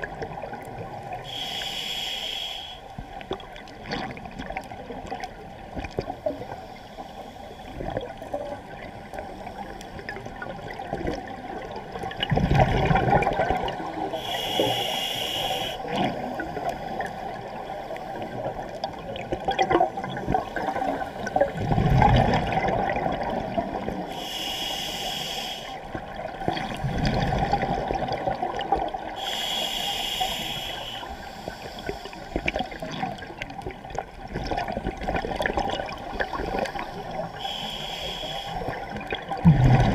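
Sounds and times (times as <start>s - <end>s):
regulator inhalation hiss: 1.2s - 2.9s, 14.1s - 15.9s, 24.1s - 25.9s, 29.2s - 32.4s, 37.3s - 38.8s
exhaled bubbles rumbling: 10.1s - 14.2s, 18.3s - 24.1s, 26.0s - 29.2s, 32.4s - 37.2s, 38.7s - 39.9s.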